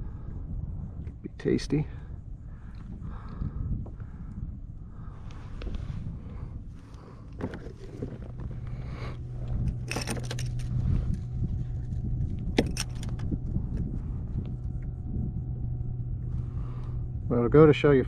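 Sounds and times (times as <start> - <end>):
steady low hum: 0.0 - 18.0
wind and water rumble: 0.0 - 18.0
knocks and rattles on plastic kayak: 7.4 - 8.6.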